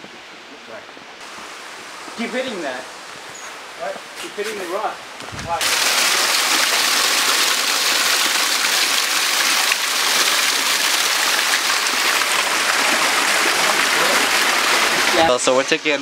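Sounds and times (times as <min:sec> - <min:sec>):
waterfall splashing into pool: 0:05.5 - 0:16.0.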